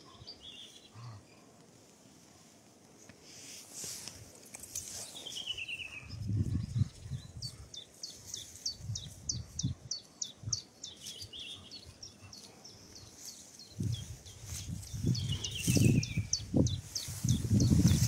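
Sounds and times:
songbirds singing: 0.0 - 1.6, 4.1 - 18.0
rustling near microphone: 1.7 - 7.1, 12.4 - 18.0.

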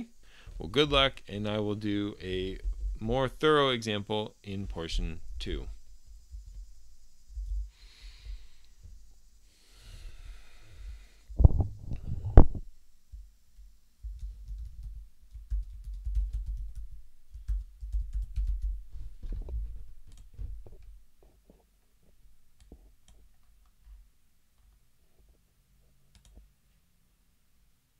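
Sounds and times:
keyboard typing clicks: 26.1 - 26.4.

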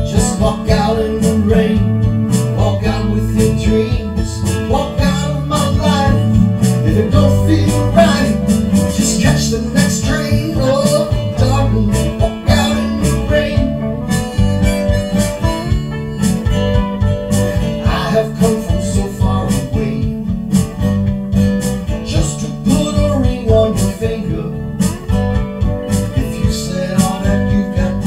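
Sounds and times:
acoustic guitar rhythm: 0.0 - 28.0
harmonica solo: 3.2 - 19.6.

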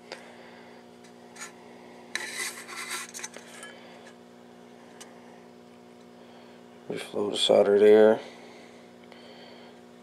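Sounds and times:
low electrical hum: 0.0 - 10.0
rubbing and scraping handling noise: 1.3 - 3.8.

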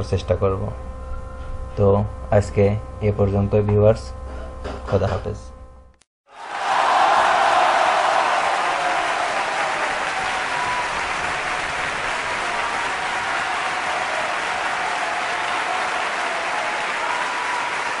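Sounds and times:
applause: 6.3 - 18.0.

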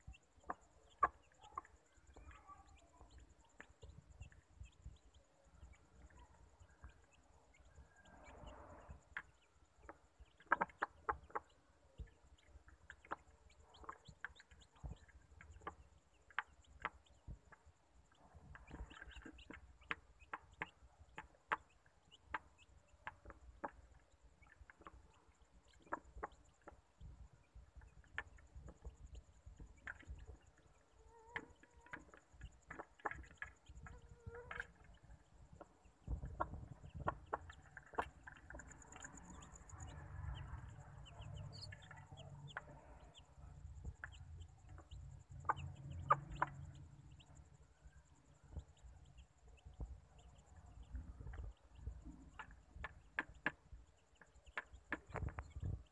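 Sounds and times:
hen clucking: 0.0 - 2.4, 8.2 - 12.1, 18.5 - 26.8, 31.0 - 43.2, 43.9 - 47.3
chicks pecking a plate: 0.0 - 55.9.

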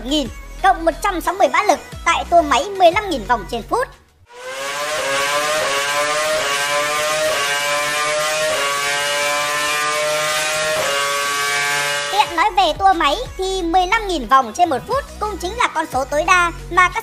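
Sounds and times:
racing car engine revving: 4.3 - 12.6.

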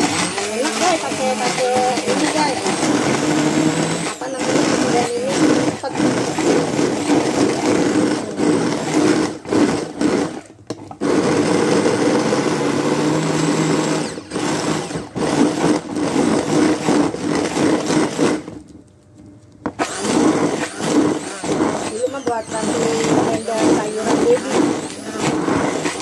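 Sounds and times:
stick blender chopping: 0.0 - 18.6, 19.6 - 26.0.

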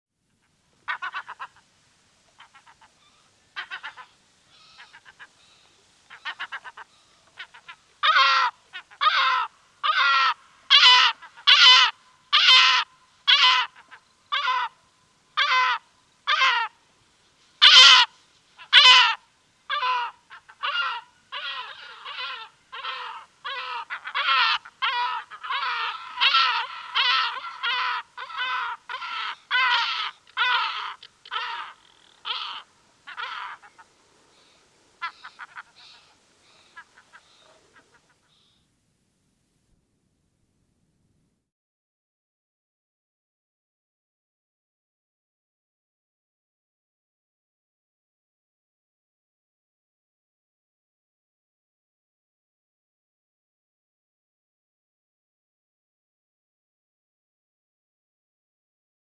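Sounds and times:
gulls calling: 17.6 - 38.4.

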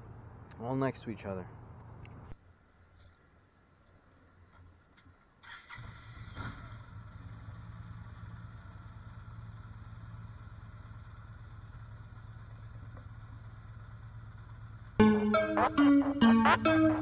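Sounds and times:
motorcycle engine starting and idling: 5.4 - 15.0.

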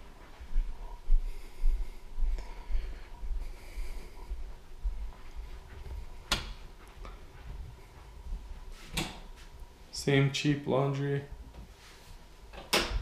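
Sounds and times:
footsteps on carpet: 0.0 - 9.6.

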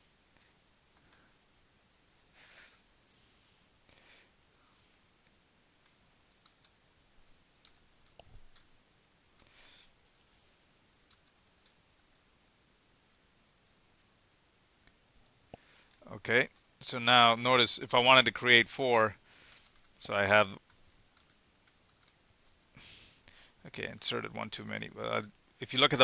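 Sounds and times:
computer mouse clicks: 0.4 - 1.2, 2.0 - 2.4, 3.0 - 3.4, 5.8 - 6.8, 7.6 - 12.3, 13.0 - 13.8, 14.6 - 16.7
keystrokes: 5.8 - 6.8, 7.6 - 12.3, 13.0 - 13.8.

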